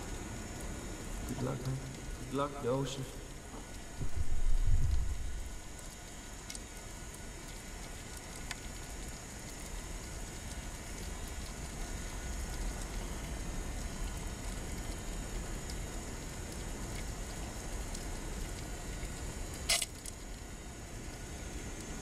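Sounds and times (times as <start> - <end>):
underwater hiss and rumble: 0.0 - 22.0.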